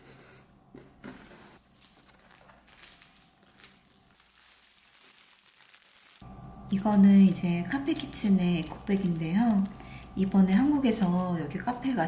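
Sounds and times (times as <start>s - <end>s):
plastic wrap crackling: 1.6s - 6.2s, 7.8s - 10.3s.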